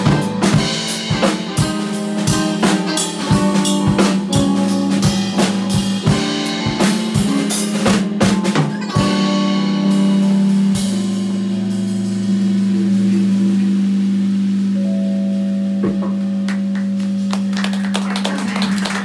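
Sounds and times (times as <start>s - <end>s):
drum hits: 0.0s - 9.2s, 15.8s - 17.3s
live band playing: 0.0s - 19.0s.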